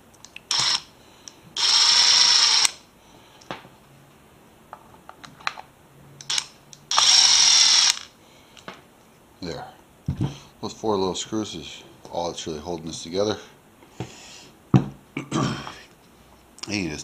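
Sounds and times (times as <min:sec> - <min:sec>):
electric screwdriver whirring: 0:00.5 - 0:00.9, 0:01.6 - 0:02.8, 0:06.3 - 0:08.1.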